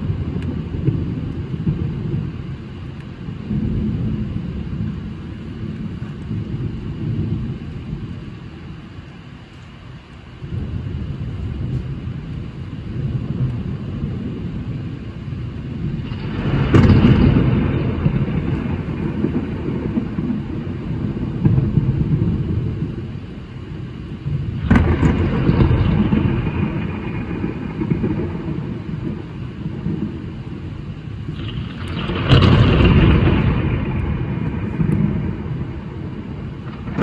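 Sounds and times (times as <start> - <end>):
thunder rolling: 0.0 - 9.0, 10.4 - 37.0
heavy rain: 0.0 - 37.0
loud thunder claps: 10.4 - 37.0.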